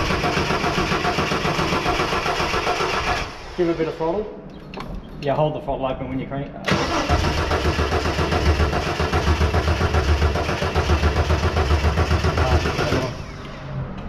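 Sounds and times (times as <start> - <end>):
starter motor cranking engine: 0.0 - 3.6, 6.7 - 13.5.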